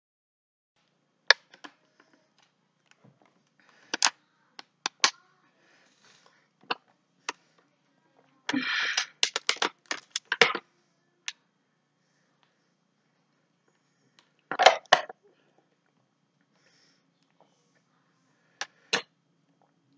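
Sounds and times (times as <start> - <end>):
plastic bottle crackling: 8.5 - 10.6.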